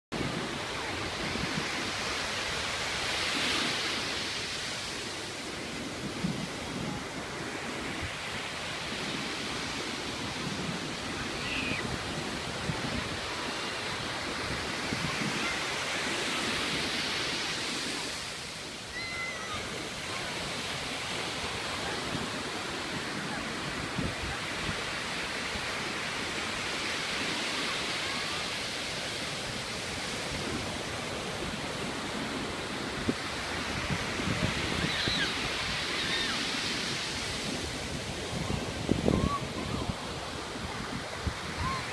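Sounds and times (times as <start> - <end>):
surf washing up a beach: 0.1 - 41.9.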